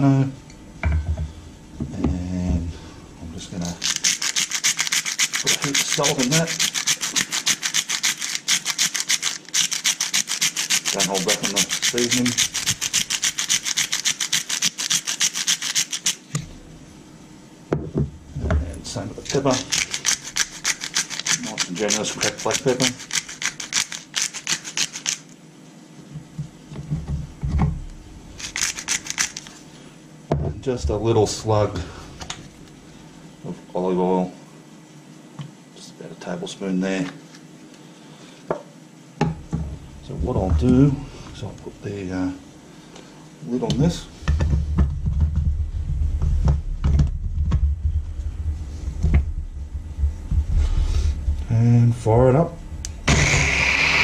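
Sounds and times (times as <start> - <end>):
pepper mill grinding: 3.5 - 16.3, 18.9 - 25.4, 28.4 - 29.6
steady low rumble: 39.8 - 42.1, 44.1 - 53.1.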